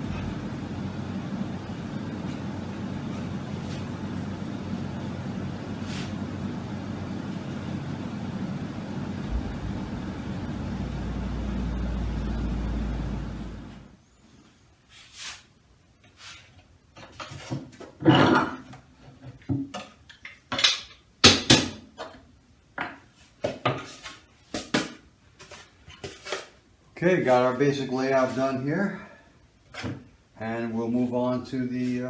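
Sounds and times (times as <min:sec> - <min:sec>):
low machine hum: 0:00.0 - 0:14.1.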